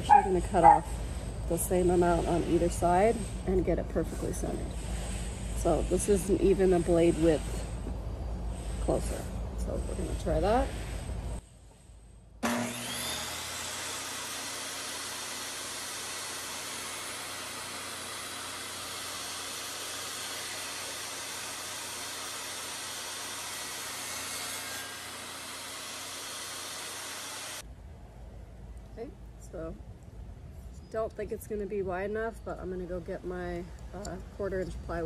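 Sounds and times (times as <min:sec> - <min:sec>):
saw cutting wood: 0:00.0 - 0:11.5, 0:12.4 - 0:27.6
table saw motor whine: 0:12.4 - 0:27.6.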